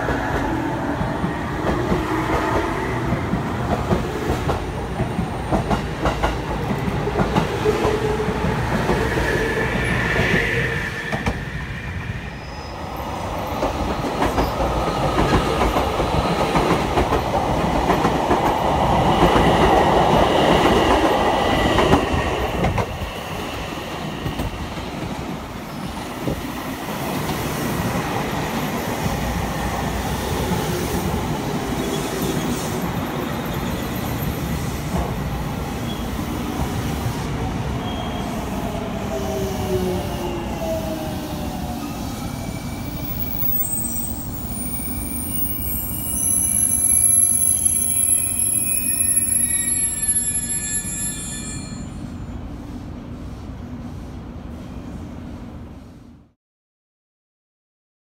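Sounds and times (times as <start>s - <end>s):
electric trains passing: 0.0s - 55.9s
faint wheel squeal: 45.0s - 52.3s.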